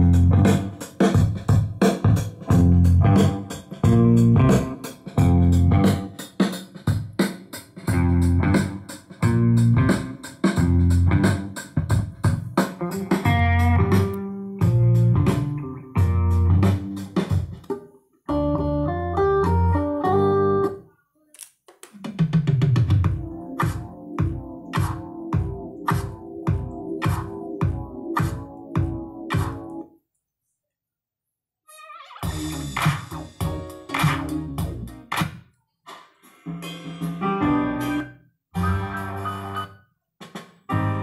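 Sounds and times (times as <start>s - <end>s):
loud guitar and bass music: 0.0s - 6.4s, 7.8s - 17.6s, 18.3s - 20.8s, 32.2s - 35.1s, 36.5s - 39.7s, 40.7s - 41.0s.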